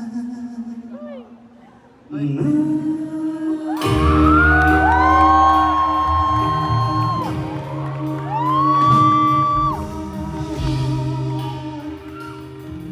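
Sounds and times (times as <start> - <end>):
man singing high notes: 2.1 - 12.9
pop-rock band playing: 3.8 - 12.9.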